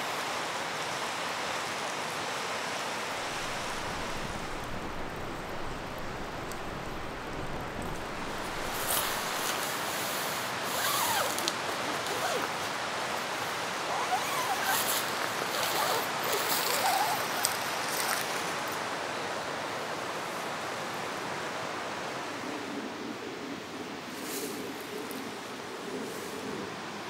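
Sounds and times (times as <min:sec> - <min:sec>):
stream rushing: 0:00.0 - 0:22.5
crisp rustling: 0:03.2 - 0:09.9, 0:10.6 - 0:18.7.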